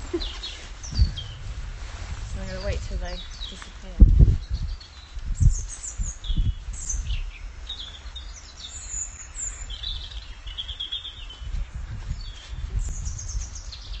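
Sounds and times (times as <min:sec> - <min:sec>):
steady low rumble: 0:00.0 - 0:07.8
songbirds chirping and trilling: 0:00.0 - 0:14.0
low thumps: 0:00.8 - 0:04.7.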